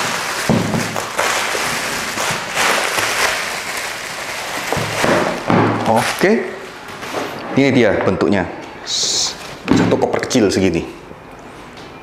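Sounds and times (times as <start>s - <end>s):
bubble wrap bag crinkling: 0.0s - 6.8s.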